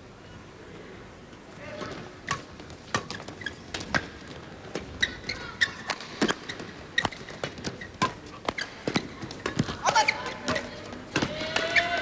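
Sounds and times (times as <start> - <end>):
rackets hitting shuttlecock: 1.8 - 4.9, 5.8 - 12.0
shoes squeaking on court: 1.8 - 12.0.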